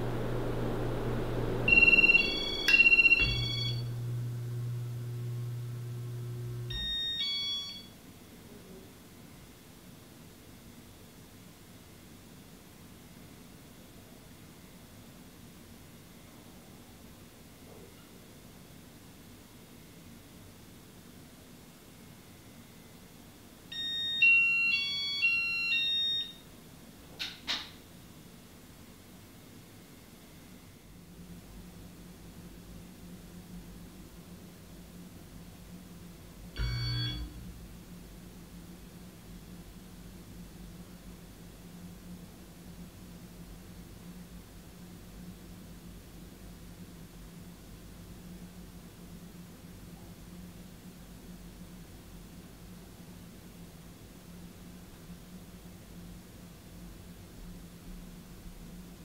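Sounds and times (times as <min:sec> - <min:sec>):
ceiling fan humming: 0:00.0 - 0:59.0
high electronic beeps: 0:01.7 - 0:03.9.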